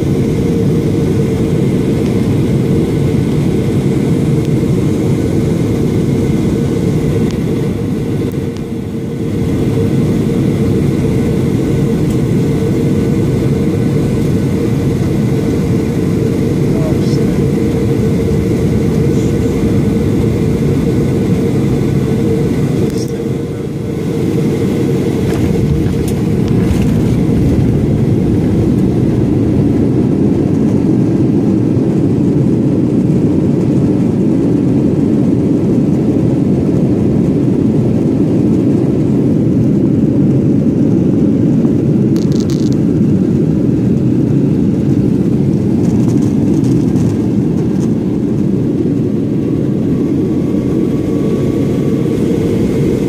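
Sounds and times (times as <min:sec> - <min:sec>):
jet engines rumbling: 0:00.0 - 0:53.0
wheels rolling on tarmac: 0:25.2 - 0:29.0.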